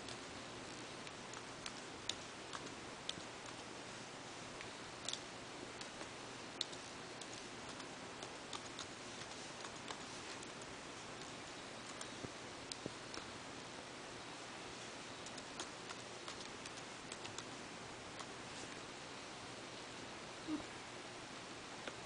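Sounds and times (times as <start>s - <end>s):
steady low hiss: 0.0s - 22.0s.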